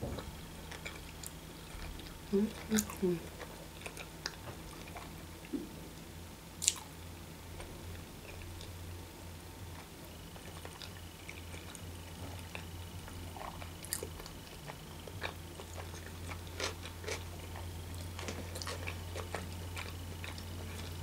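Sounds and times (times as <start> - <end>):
low steady hum: 0.0 - 21.0
person chewing: 0.7 - 5.6, 6.6 - 6.9, 9.8 - 21.0.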